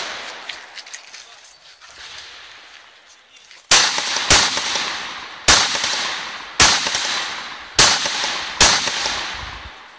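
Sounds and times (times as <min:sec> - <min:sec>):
rifle shots echoing: 0:00.0 - 0:00.7, 0:03.7 - 0:09.9.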